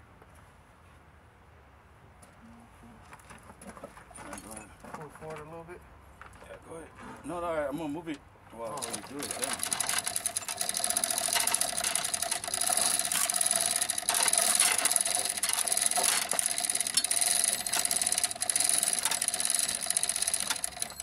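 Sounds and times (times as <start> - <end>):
motorized hoist whining: 8.6 - 21.0
chain rattling: 8.7 - 21.0.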